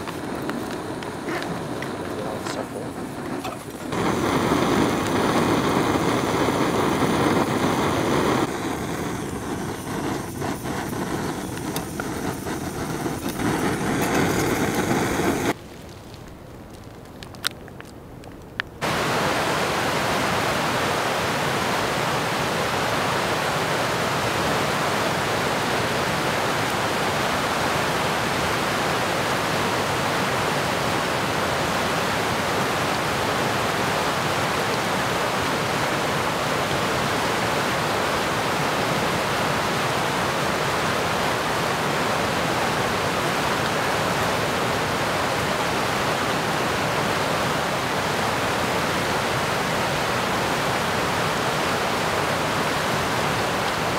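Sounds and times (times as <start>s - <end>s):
water rushing over rocks: 18.8s - 53.9s.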